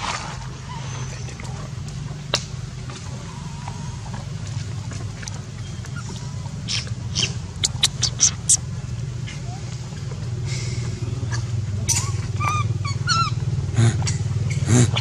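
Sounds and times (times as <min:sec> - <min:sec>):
low hum: 0:03.8 - 0:09.2
baby monkey whimpering: 0:05.9 - 0:08.6
sharp click: 0:07.6 - 0:08.6.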